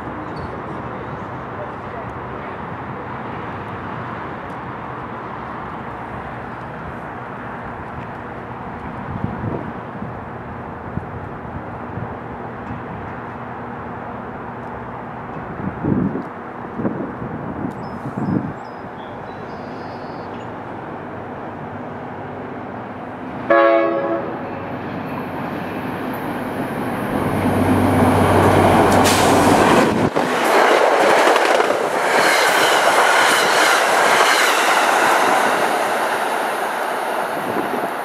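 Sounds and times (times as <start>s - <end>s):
locomotive horn blast: 23.5s - 24.4s
train wheel clatter: 28.2s - 36.5s.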